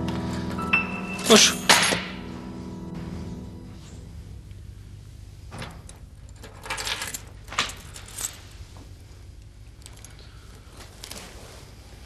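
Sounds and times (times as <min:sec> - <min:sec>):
keys jangling: 0:05.6 - 0:08.6.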